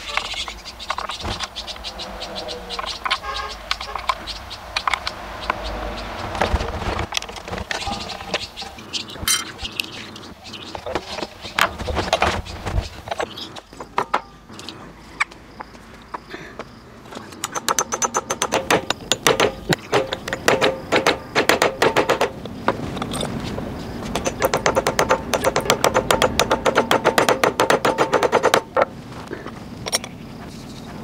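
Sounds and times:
hammer tapping metal: 17.4 - 22.4, 24.2 - 28.8.

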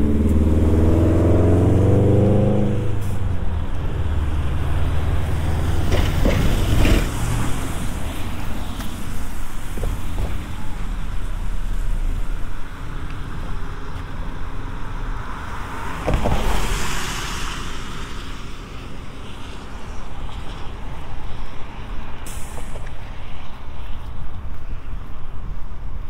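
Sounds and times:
vehicle passing: 0.0 - 10.1
steady low traffic rumble: 0.0 - 26.0
vehicle tyre hiss: 16.4 - 24.8.

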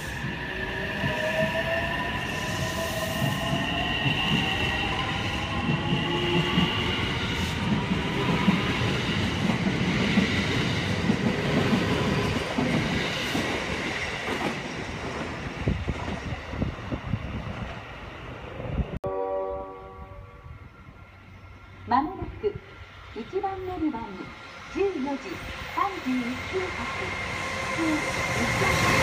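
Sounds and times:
electric train passing: 0.0 - 29.0.

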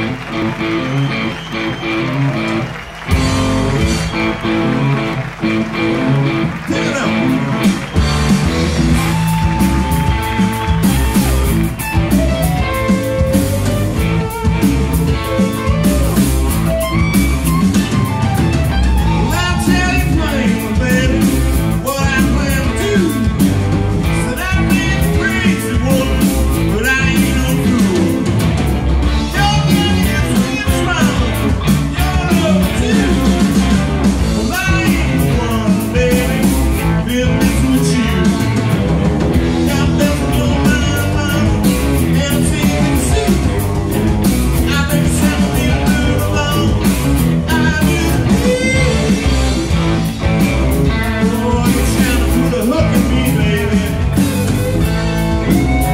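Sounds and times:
drums: 0.0 - 55.9
electric guitars: 0.0 - 55.9
man singing lead: 6.6 - 8.1, 19.0 - 28.4, 29.1 - 55.9.

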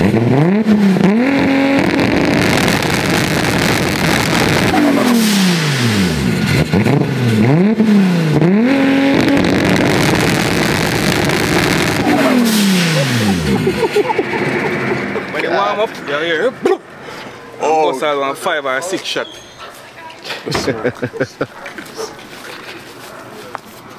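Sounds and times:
car engine revving: 0.0 - 15.9.

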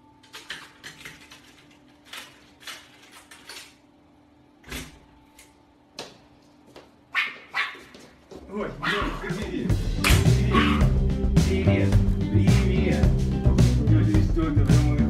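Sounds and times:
steady low hum: 8.0 - 15.0.

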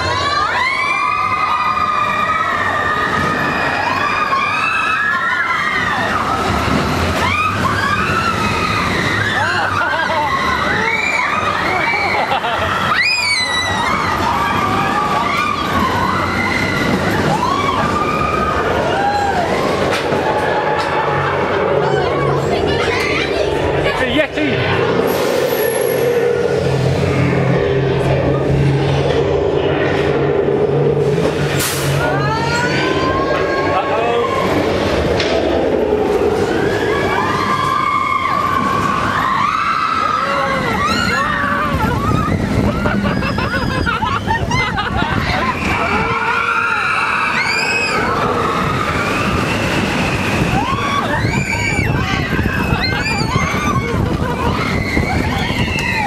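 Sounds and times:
long wailing tones: 0.0 - 56.0
dense rumble: 13.6 - 56.0
siren-like wails: 35.6 - 56.0.

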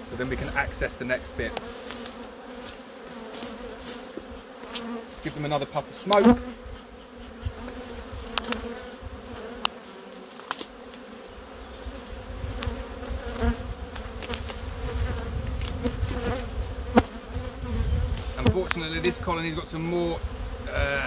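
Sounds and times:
bees buzzing: 0.0 - 21.0
wooden hive boxes clicking and knocking: 3.3 - 6.6, 7.7 - 8.8, 9.4 - 11.1, 12.0 - 14.6, 17.7 - 19.2.

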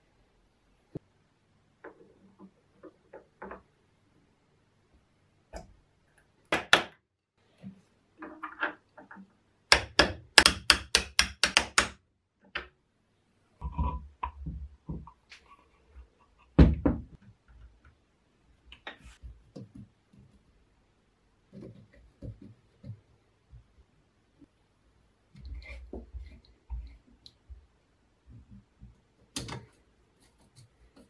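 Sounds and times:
metal parts knocking and tapping: 8.2 - 12.7.

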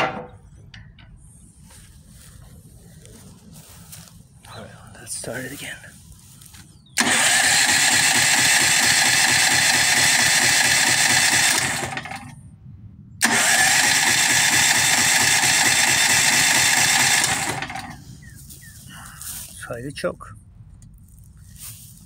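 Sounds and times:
electric starter cranking engine: 7.0 - 12.4, 13.2 - 18.0.

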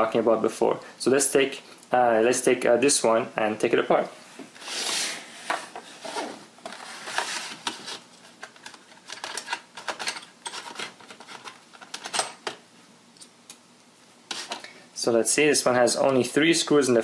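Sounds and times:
small tools and plastic box rattling: 8.4 - 12.6.

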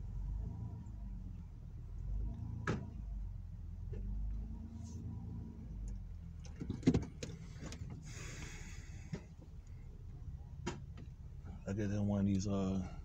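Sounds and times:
car engine idling: 0.0 - 13.0
sharp clicks and knocks: 6.4 - 8.0.

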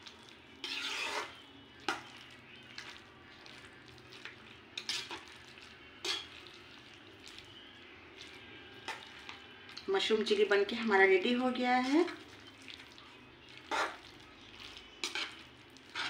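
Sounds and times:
faint sizzle: 0.0 - 16.0
metal spoon scraping pan: 0.6 - 2.1, 4.7 - 5.3, 6.0 - 6.5, 13.7 - 14.0, 14.9 - 16.0.

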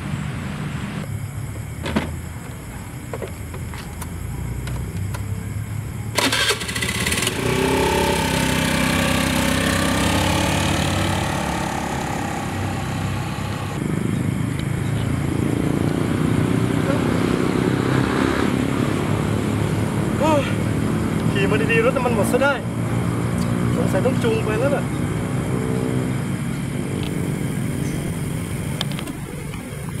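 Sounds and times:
scooter engine starting and revving: 6.1 - 13.8.

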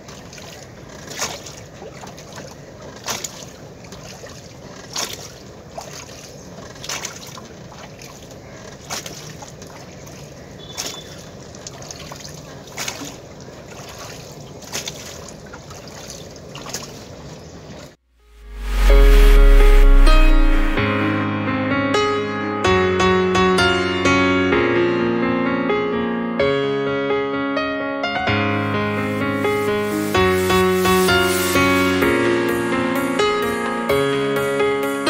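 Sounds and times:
oar splashing in water: 0.0 - 18.0
wash of moving water: 0.0 - 20.8, 28.7 - 32.7.

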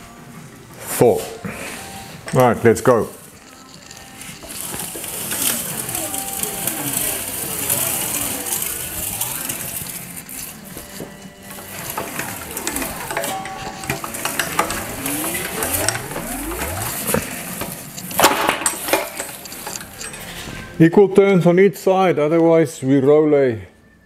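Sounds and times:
steel sheet warbling: 12.0 - 17.5.

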